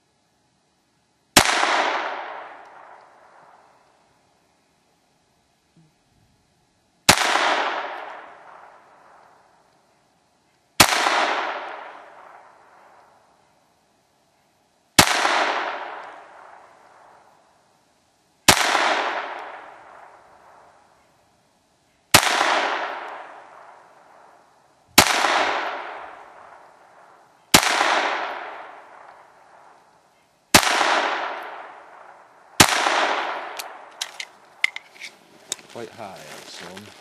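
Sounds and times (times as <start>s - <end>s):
pistol shots with echo: 1.4s - 3.7s, 7.1s - 9.4s, 10.8s - 13.0s, 15.0s - 17.3s, 18.5s - 20.7s, 22.1s - 24.4s, 25.0s - 29.8s, 30.5s - 34.2s.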